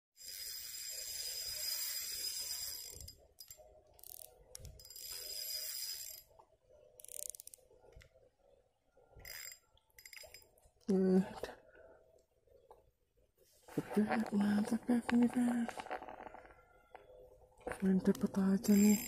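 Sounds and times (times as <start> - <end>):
fishing reel ratcheting whirr: 0.2 - 6.4, 7.0 - 7.6, 9.2 - 10.4, 18.7 - 19.0.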